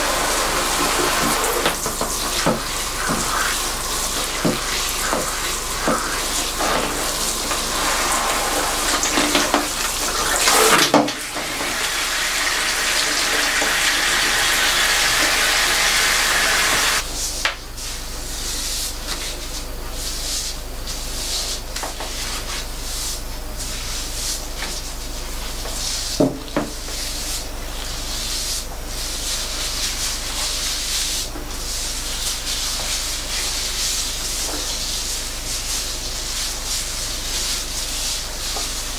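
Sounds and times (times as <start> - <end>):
wet hair rubbing: 0.0 - 10.8
shower head spraying water: 0.0 - 17.0.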